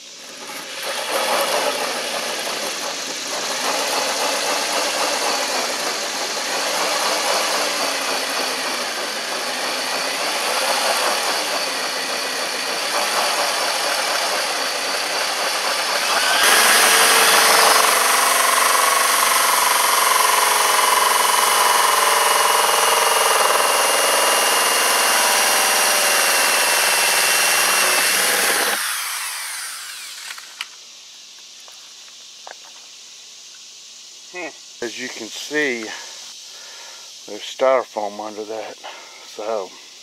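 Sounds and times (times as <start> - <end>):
power drill with hole saw cutting plastic: 0.0 - 30.7.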